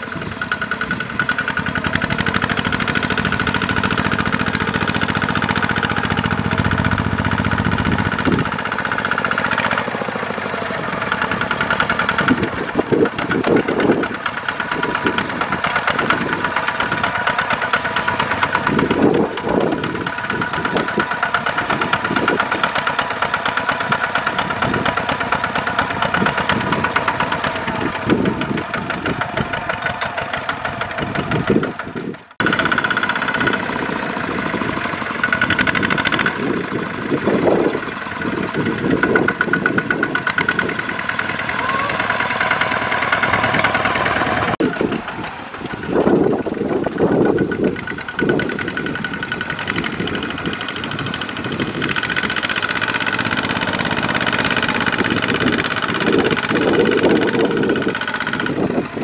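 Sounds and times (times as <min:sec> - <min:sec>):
diesel engines chugging: 0:00.0 - 0:59.0.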